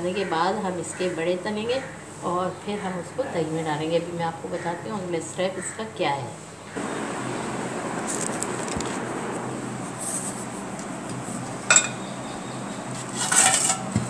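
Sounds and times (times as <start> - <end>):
steady background hiss: 0.0 - 14.0
dishes clattering: 11.6 - 12.1
glass dishes clinking: 11.7 - 12.1.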